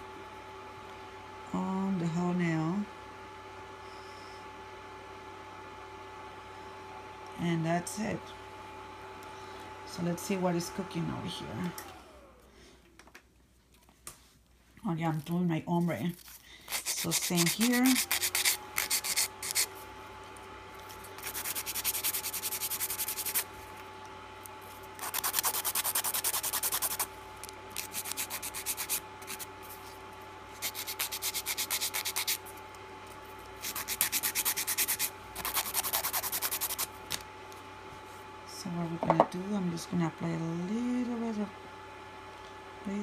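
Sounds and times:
faint steady hum: 0.0s - 43.0s
nail file rasping on fingernail: 16.2s - 19.7s, 21.2s - 23.4s, 25.0s - 27.1s, 27.8s - 29.5s, 30.6s - 32.4s, 33.6s - 36.9s.

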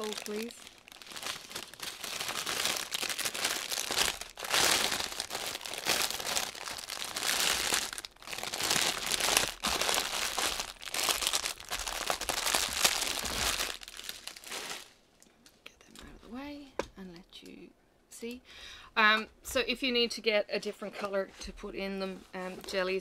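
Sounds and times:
plastic bag crinkling: 0.0s - 15.0s.

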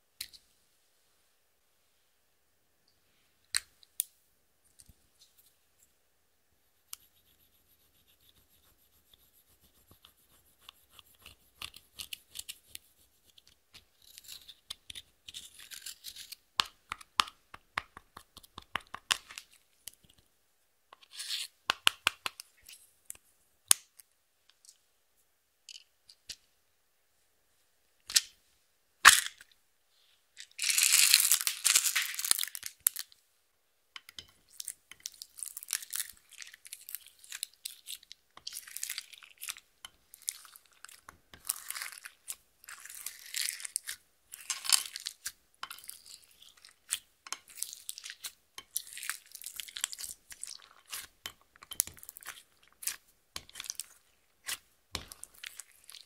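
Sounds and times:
sharp clicks and taps: 16.6s - 20.2s.

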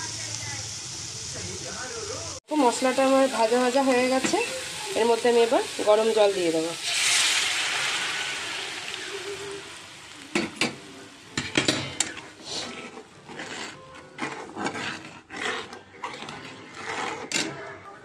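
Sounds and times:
water sizzling in pan: 0.0s - 13.7s
steel spatula scraping pan: 3.2s - 5.6s, 12.0s - 17.7s.

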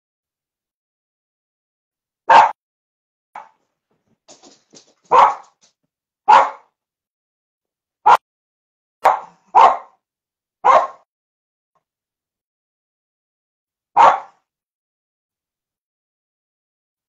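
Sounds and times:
dog barking: 2.3s - 2.6s, 3.4s - 3.6s, 5.0s - 5.7s, 6.3s - 6.8s, 9.0s - 10.0s, 10.6s - 11.1s, 14.0s - 14.5s.

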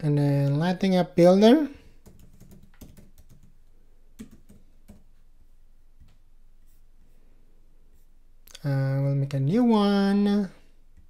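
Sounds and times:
keyboard typing: 2.0s - 5.1s.

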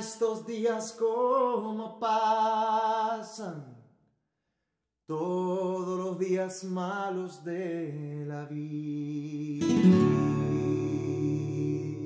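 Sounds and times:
man singing: 0.0s - 3.8s, 5.1s - 12.0s
classical guitar: 9.6s - 12.0s.

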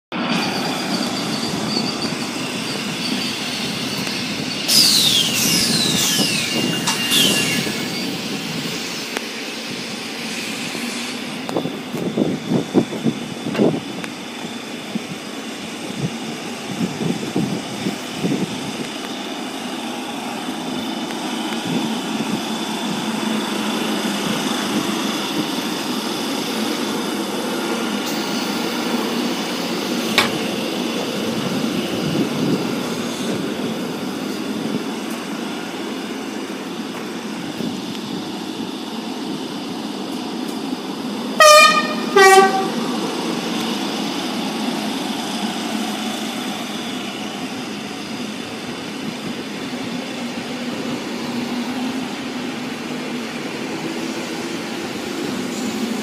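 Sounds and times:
electric train running past: 0.1s - 56.0s
wheels squealing: 0.2s - 9.2s.

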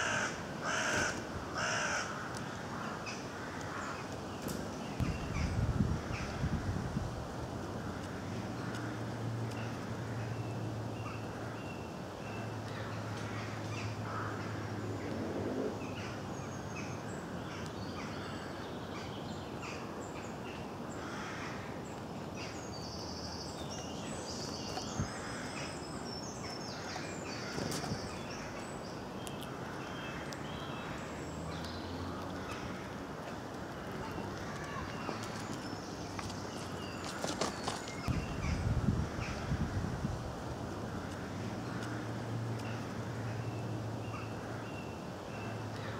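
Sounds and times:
small birds chirping: 15.8s - 39.5s.

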